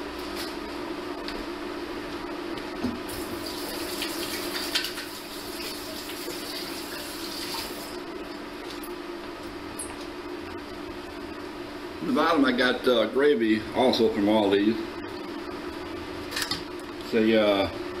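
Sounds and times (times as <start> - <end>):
steady hum: 0.0 - 18.0
liquid sizzling in pot: 3.1 - 8.0.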